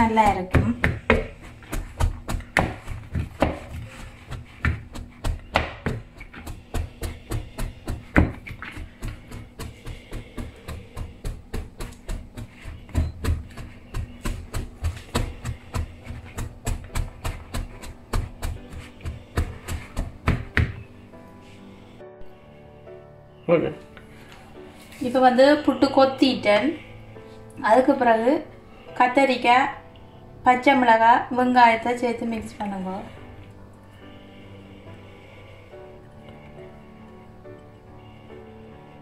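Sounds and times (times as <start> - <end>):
tumbler tapping into dough: 0.2 - 20.9.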